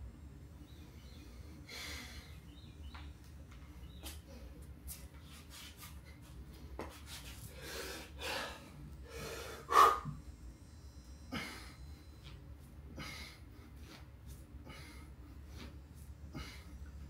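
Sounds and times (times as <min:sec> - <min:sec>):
man exhaling heavily: 0:07.6 - 0:10.2.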